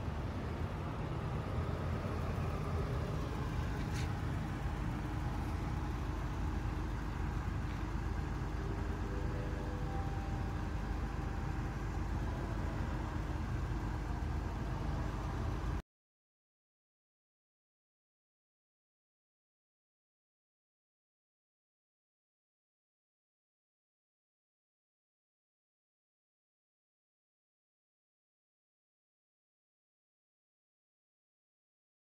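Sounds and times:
vehicle engines idling: 0.0s - 15.8s.

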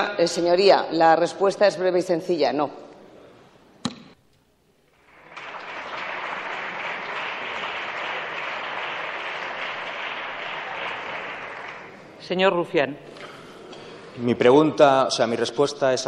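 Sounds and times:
applause: 5.0s - 12.1s.

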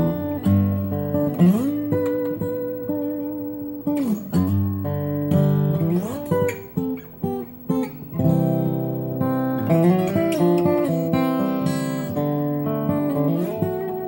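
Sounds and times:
acoustic guitar fingerpicked chords: 0.0s - 14.0s.

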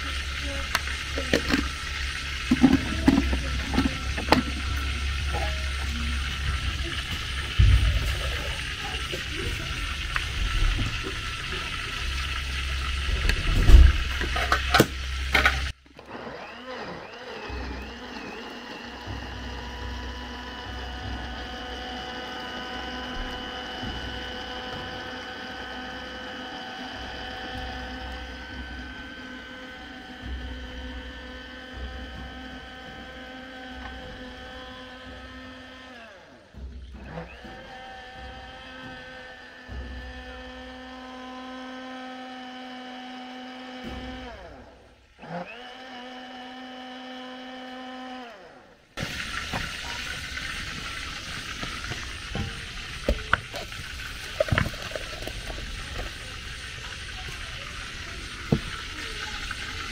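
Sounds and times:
blender motor grinding: 0.0s - 59.9s
blender lid knocking and rattling: 2.4s - 4.7s, 51.5s - 56.2s.

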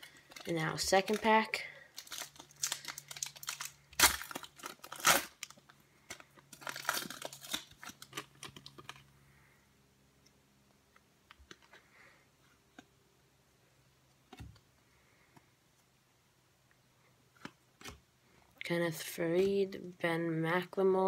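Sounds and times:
wrapper tearing and crinkling: 0.0s - 9.0s.

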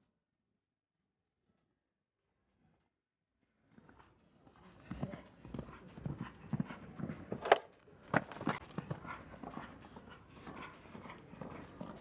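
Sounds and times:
horse breaths: 3.6s - 12.0s
horse hoofbeats on sand: 8.2s - 12.0s.

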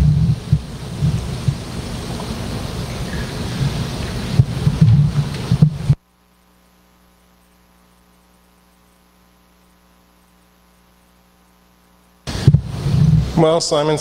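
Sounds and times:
loud rumbling hiss: 0.0s - 6.0s, 12.3s - 14.0s
faint electrical mains hum: 0.0s - 14.0s.

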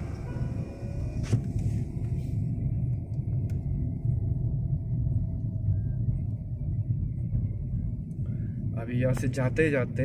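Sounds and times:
car engine and tyre noise: 0.0s - 10.0s.

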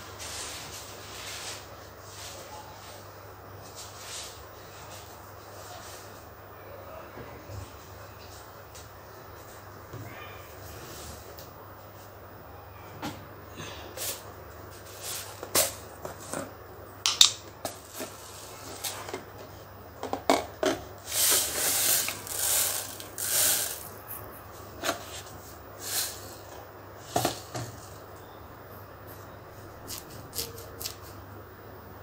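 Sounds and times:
short hissing bursts: 21.0s - 24.0s.

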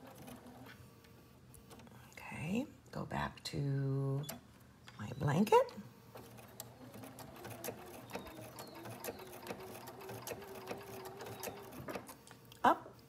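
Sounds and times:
faint motor hum: 0.0s - 13.0s
sewing machine needle ticks: 6.2s - 12.1s.

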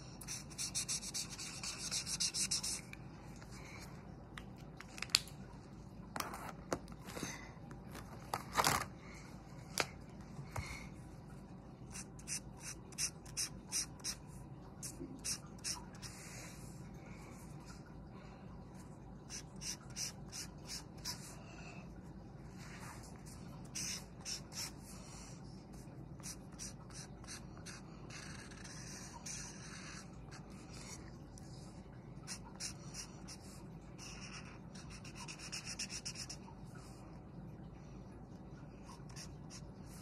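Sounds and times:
marker scratching on paper: 0.2s - 2.9s, 11.9s - 14.2s, 14.8s - 16.4s, 19.3s - 21.4s, 22.6s - 25.2s, 26.2s - 31.0s, 32.3s - 36.4s, 39.0s - 40.0s.

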